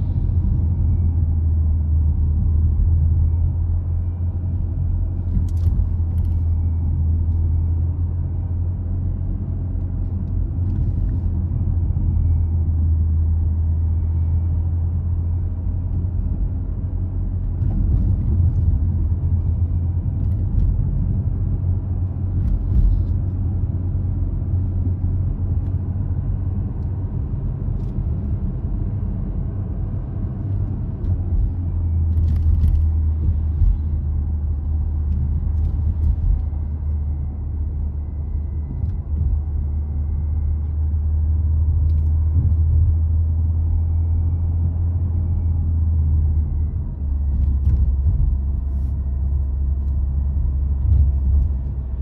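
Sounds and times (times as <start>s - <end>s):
car engine and road rumble: 0.0s - 52.0s.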